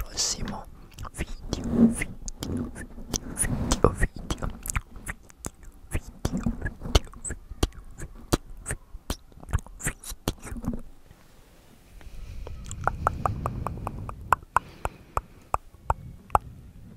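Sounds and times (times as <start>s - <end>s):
soft low rumble: 0.0s - 16.9s
sharp clicks on microphone: 12.6s - 16.5s
fast regular clicks: 12.7s - 16.0s.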